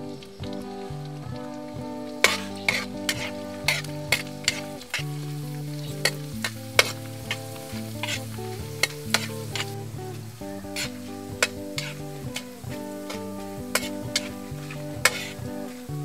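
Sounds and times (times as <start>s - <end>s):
food sizzling in hot oil: 0.0s - 16.0s
soft background music: 0.0s - 16.0s
metal spatula scraping pan: 2.2s - 9.8s, 10.7s - 15.6s.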